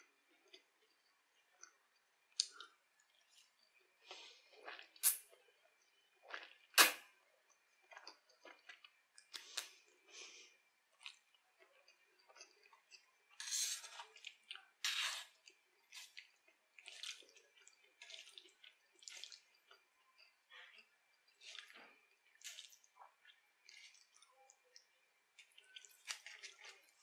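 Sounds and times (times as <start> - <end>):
wet chewing: 10.9 - 27.0.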